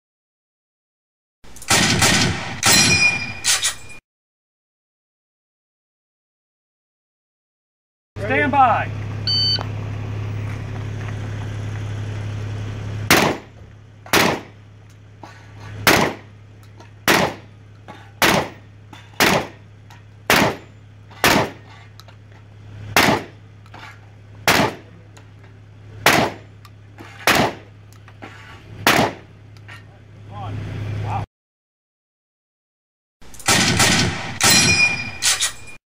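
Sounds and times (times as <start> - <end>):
shotgun firing: 1.6 - 3.5, 13.1 - 13.5, 14.1 - 14.6, 15.8 - 16.3, 17.1 - 17.5, 18.2 - 18.6, 19.2 - 19.6, 20.3 - 20.6, 21.2 - 21.6, 23.0 - 23.4, 24.5 - 24.9, 26.0 - 26.4, 27.3 - 27.6, 28.8 - 29.2, 33.3 - 35.4.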